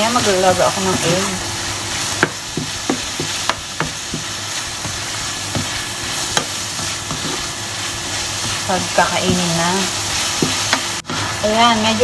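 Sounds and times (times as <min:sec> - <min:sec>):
chicken and onions sizzling in pan: 0:00.0 - 0:12.0
spatula scraping and tapping pan: 0:02.2 - 0:11.3.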